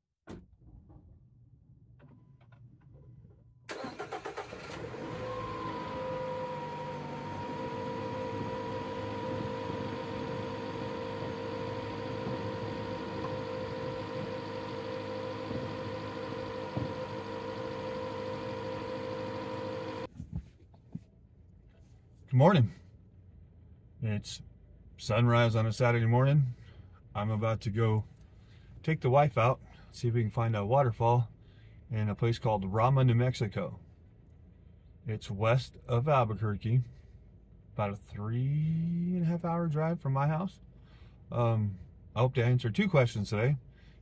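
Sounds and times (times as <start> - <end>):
engine idling with light whine: 2.0 - 20.6
car engine cranking: 3.7 - 20.1.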